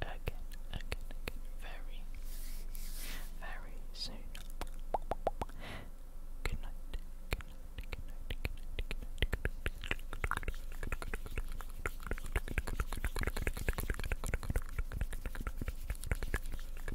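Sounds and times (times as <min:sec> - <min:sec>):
wet mouth clicks: 0:00.2 - 0:01.5, 0:04.3 - 0:05.6, 0:06.5 - 0:16.9.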